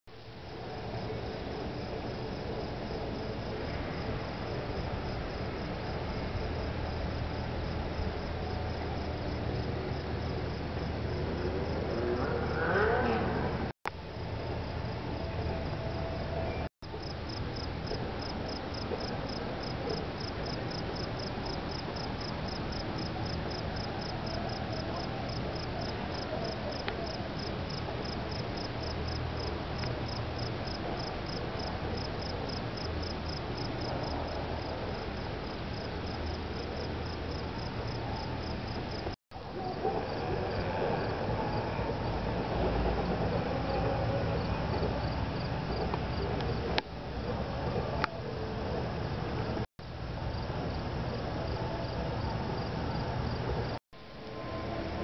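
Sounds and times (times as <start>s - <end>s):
insect chirping: 17.0s - 33.9s.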